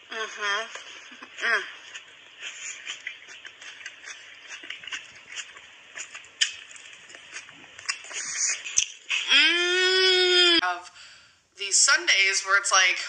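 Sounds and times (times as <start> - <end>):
chewing crunchy vegetable: 0.6 - 9.6.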